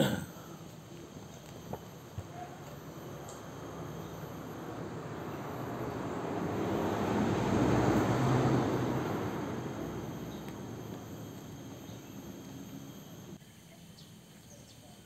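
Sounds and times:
vehicle passing by: 2.8s - 13.4s.

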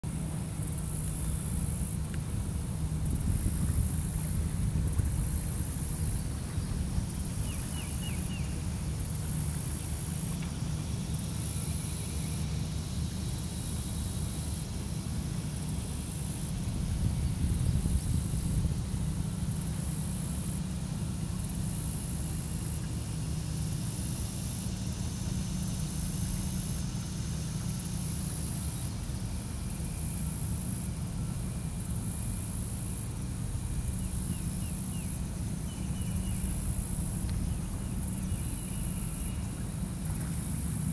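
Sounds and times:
steady low rumble: 0.0s - 40.9s.

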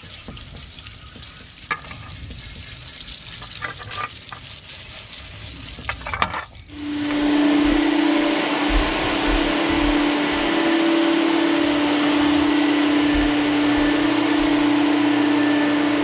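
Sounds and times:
hose water splattering on plastic: 0.0s - 6.8s
shop vacuum running: 6.7s - 16.0s.

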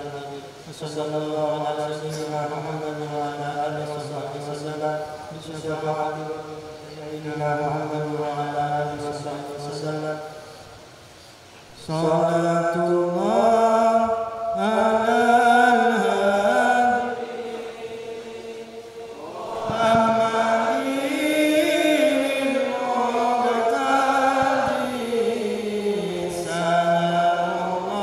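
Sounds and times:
person chanting: 11.8s - 28.0s.

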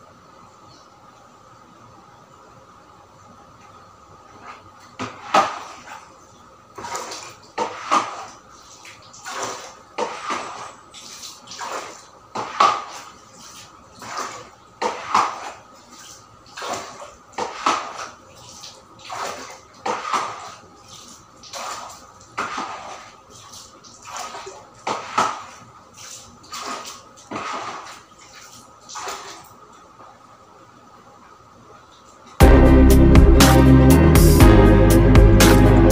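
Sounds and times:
brush scrubbing wet tiled floor: 4.3s - 6.2s, 6.8s - 29.6s.

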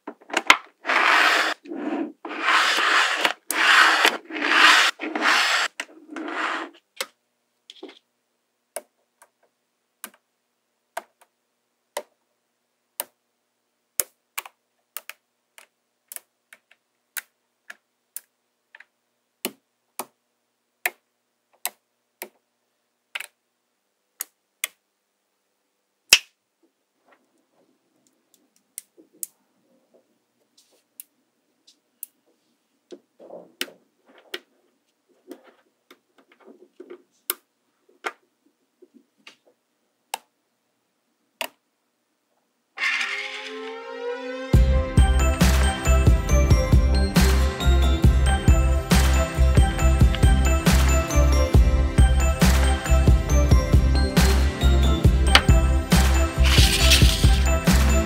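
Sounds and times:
plastic card scraping magnetic balls: 0.1s - 8.1s, 55.3s - 55.5s, 56.4s - 57.5s.

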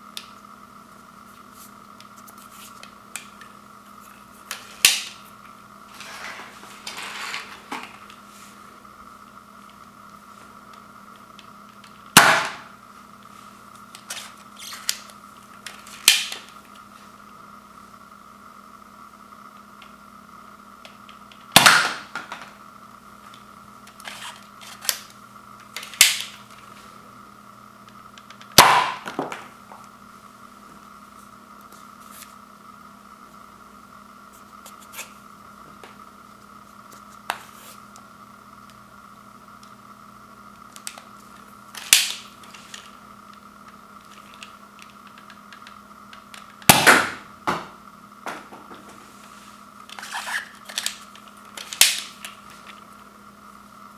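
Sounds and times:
toy blaster spring-air pops: 12.1s - 12.7s, 28.4s - 29.1s, 46.6s - 47.2s, 51.6s - 52.2s.

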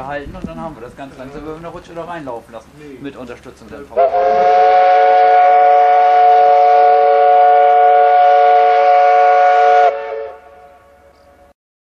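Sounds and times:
steam whistle chord: 4.0s - 11.5s.

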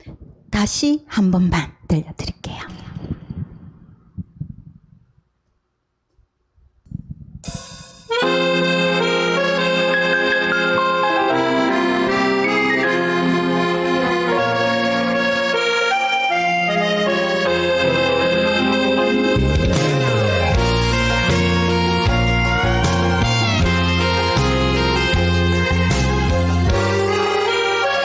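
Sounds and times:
instrumental backing track: 7.4s - 28.0s.

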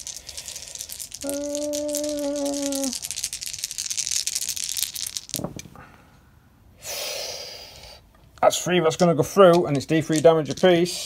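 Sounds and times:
plastic dice rattling on a table: 0.0s - 5.7s, 8.9s - 11.0s.

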